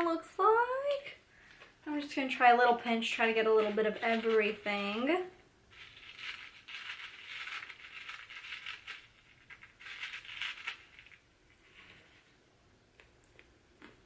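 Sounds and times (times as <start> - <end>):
crinkly plastic rustling: 3.0 - 12.3.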